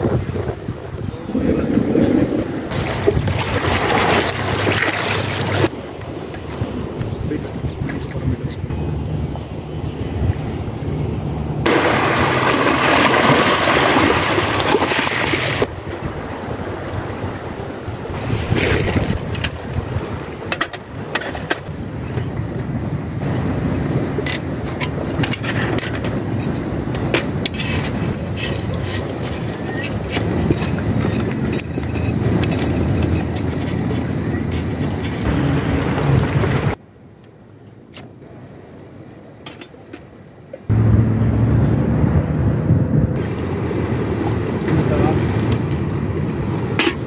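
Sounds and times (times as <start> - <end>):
waves washing on pebbly shore: 0.0 - 5.9, 11.6 - 21.2, 43.2 - 47.0
wind rumble on microphone: 0.0 - 36.8, 40.7 - 47.0
low rumble: 40.7 - 43.6.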